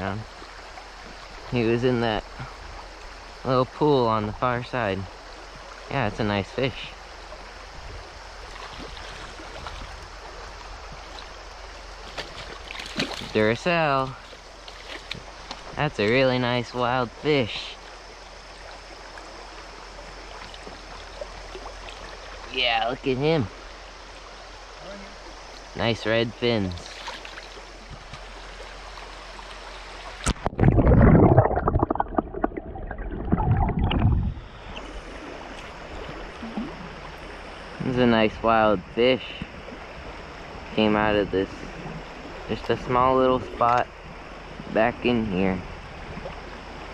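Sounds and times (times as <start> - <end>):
creek water flowing over stones: 0.0 - 46.9
underwater rushing and gurgling: 0.0 - 46.9
splash in water: 8.5 - 10.0, 12.0 - 13.4, 26.8 - 28.4.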